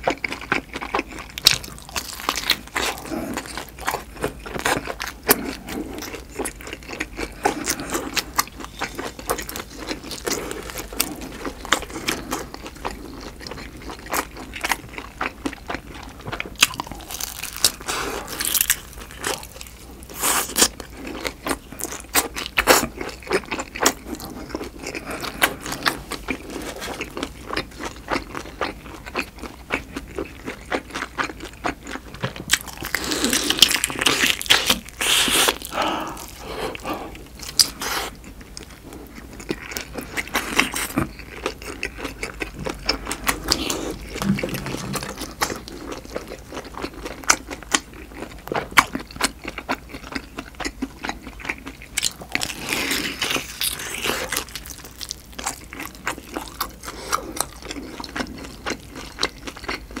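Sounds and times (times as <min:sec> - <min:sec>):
close-miked chewing with mouth clicks: 0:00.0 - 1:00.0
crunchy chewing: 0:00.0 - 1:00.0.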